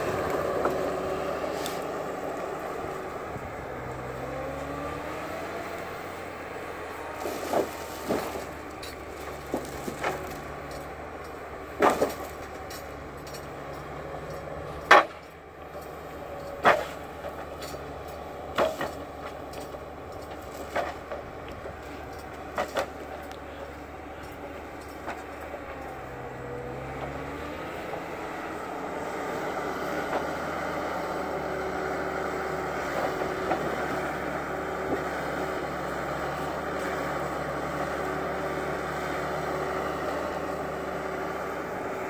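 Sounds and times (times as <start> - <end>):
forwarder engine running: 0.0 - 42.0
sharp knocks and clunks: 14.8 - 15.4.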